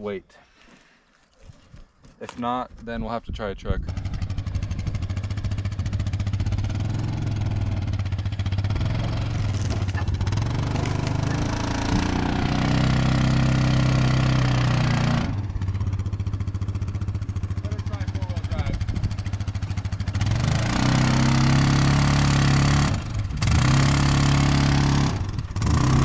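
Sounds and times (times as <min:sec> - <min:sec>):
vehicle engine revving: 0:03.8 - 0:26.0.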